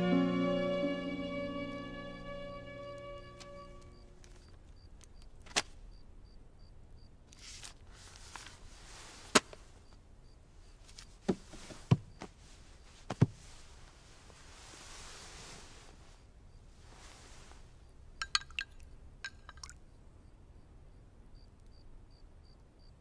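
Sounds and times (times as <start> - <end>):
soft rustling: 7.3 - 10.0, 10.6 - 18.0.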